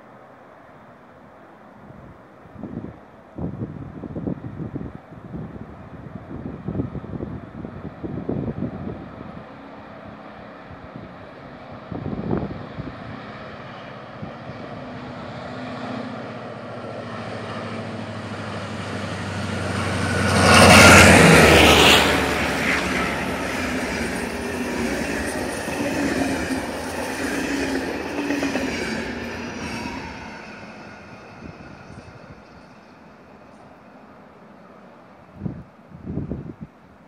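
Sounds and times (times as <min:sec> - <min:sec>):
diesel locomotive engine drone: 0:00.0 - 0:37.0
train wheels on rail: 0:09.3 - 0:35.4.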